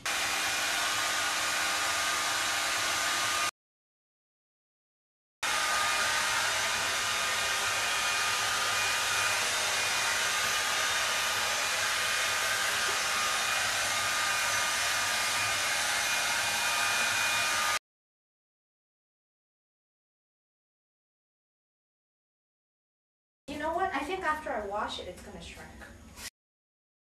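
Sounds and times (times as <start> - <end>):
hair dryer running: 0.0 - 3.5, 5.4 - 17.8.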